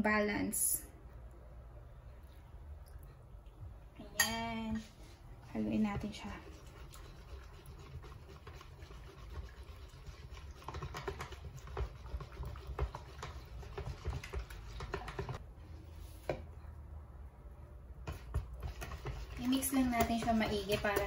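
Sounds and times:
whisk clicking against basin: 0:06.6 - 0:15.4.

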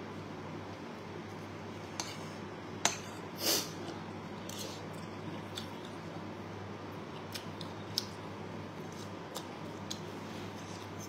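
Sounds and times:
steady low hum: 0:00.0 - 0:11.0
faint chewing: 0:07.1 - 0:11.0.

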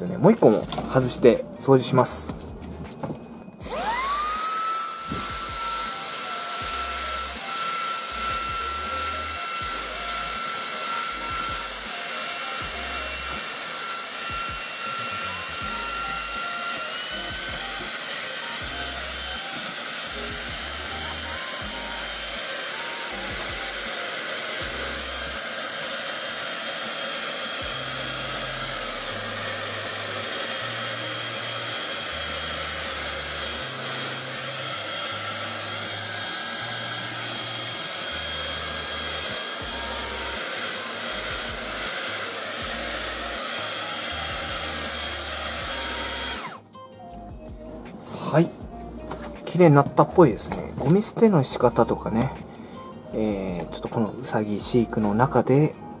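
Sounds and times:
handheld vacuum cleaner whining: 0:03.0 - 0:46.7.

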